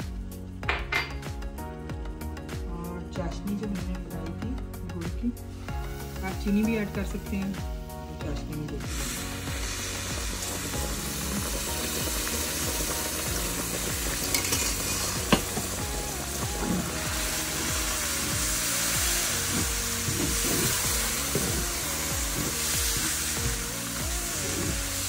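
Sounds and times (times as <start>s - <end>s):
syrup sizzling in a pan: 5.4s - 25.0s.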